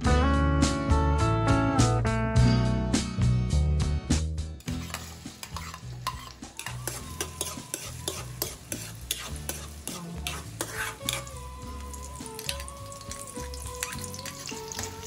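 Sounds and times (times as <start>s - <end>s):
metal ladle scraping a wok: 4.6s - 15.0s
onion sizzling in oil: 4.6s - 15.0s.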